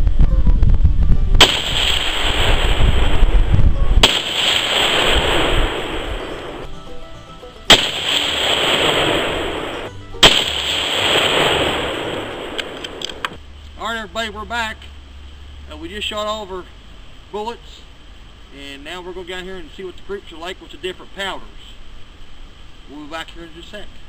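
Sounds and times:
rifle shots with echo: 1.4s - 3.2s, 4.0s - 6.6s, 7.7s - 13.2s.

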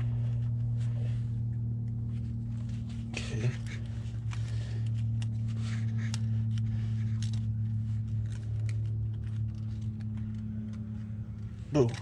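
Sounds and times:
steady low hum: 0.0s - 12.0s
zip tie clicking: 4.2s - 10.8s.

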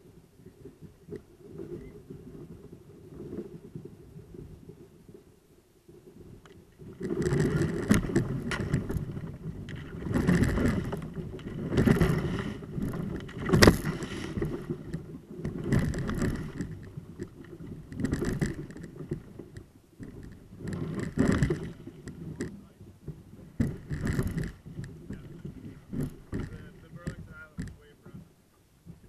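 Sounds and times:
kayak crunching through thin ice: 5.9s - 28.3s.

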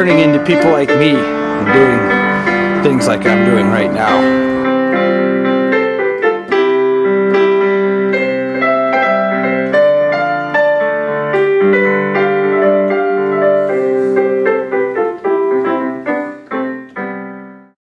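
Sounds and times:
piano music: 0.0s - 17.8s.

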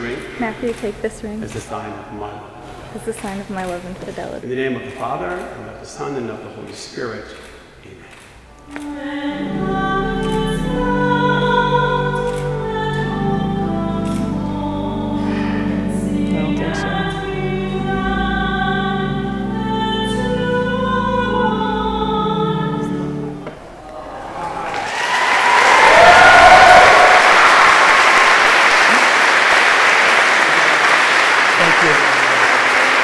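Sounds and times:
choir singing: 8.5s - 28.5s
crowd applause and cheering: 23.4s - 33.0s.

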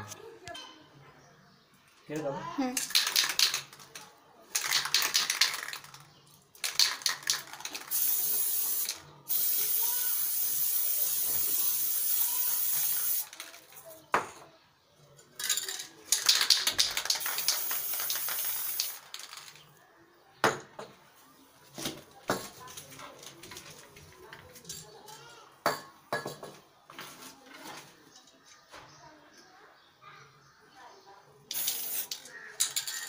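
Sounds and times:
spray can ball rattling: 2.8s - 14.0s, 15.4s - 19.8s, 31.5s - 33.0s
spray paint hissing: 2.9s - 3.8s, 4.5s - 6.0s, 6.6s - 13.9s, 16.1s - 19.6s, 31.5s - 33.0s.

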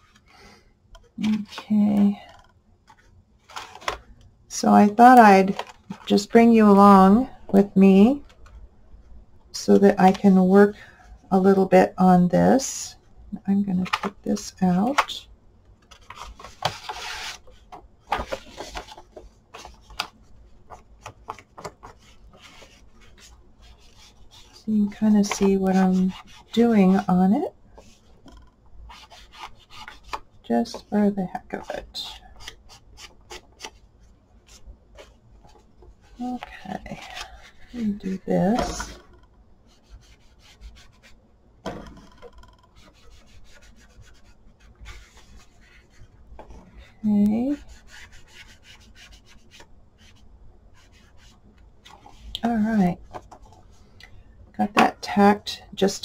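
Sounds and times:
paper rustling: 2.9s - 4.1s, 15.8s - 27.1s
foam tool scuffing paper: 16.2s - 17.5s.

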